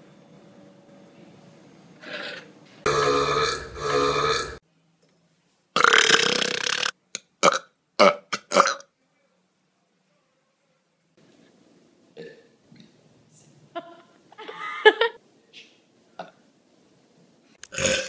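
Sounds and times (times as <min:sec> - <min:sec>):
men belching: 0:02.9 - 0:04.6, 0:17.7 - 0:18.0.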